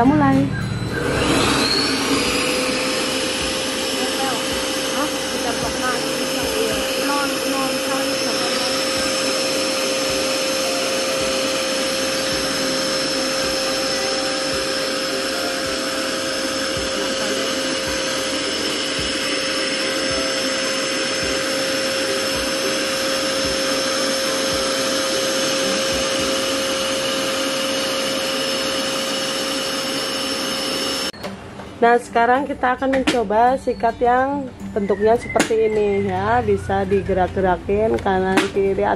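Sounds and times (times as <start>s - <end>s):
vacuum cleaner motor whine: 0.5s - 31.2s.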